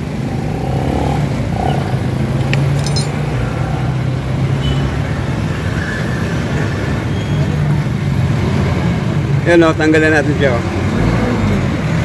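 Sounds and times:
light metallic clinks: 2.5 - 3.2.

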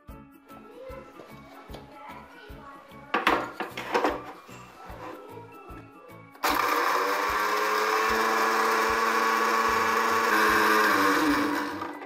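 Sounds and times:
mixer grinder running: 6.4 - 12.0.

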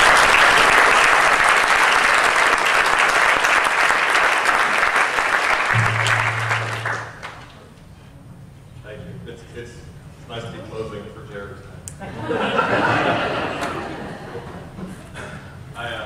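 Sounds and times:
audience applauding: 0.0 - 7.5
low steady hum: 5.7 - 11.2.

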